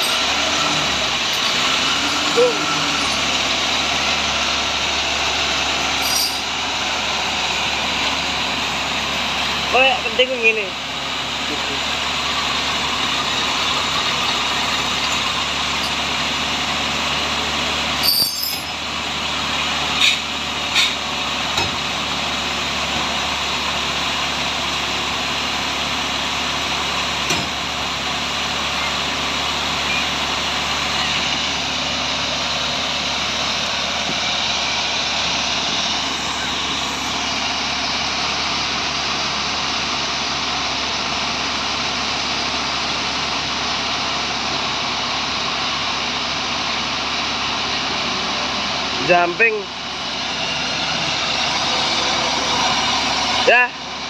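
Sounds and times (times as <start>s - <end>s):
truck engine running: 0.0s - 54.0s.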